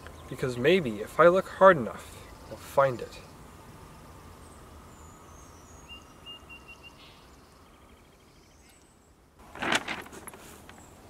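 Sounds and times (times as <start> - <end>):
faint bird chirps: 2.1 - 9.2.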